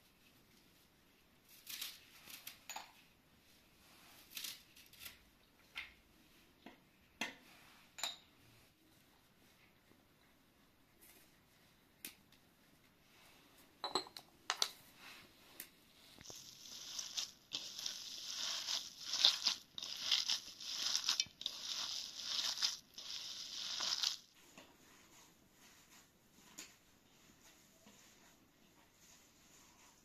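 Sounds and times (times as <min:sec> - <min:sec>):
spoon clinking on ceramic jars: 0:08.0 - 0:08.3, 0:13.8 - 0:14.2
wet squishing of kneaded meat: 0:16.2 - 0:24.3.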